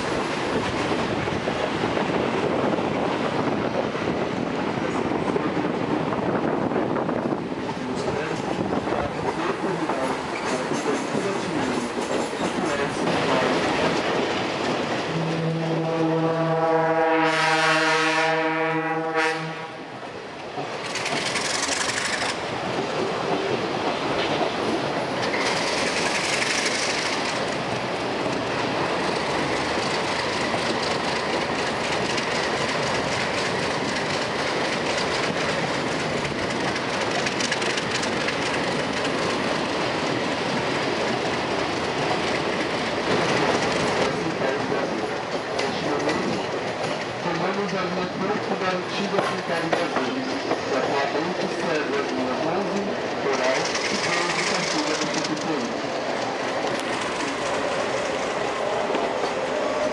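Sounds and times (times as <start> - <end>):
train wheels rolling on rails: 0.0 - 59.9
train horn blast: 15.1 - 19.9.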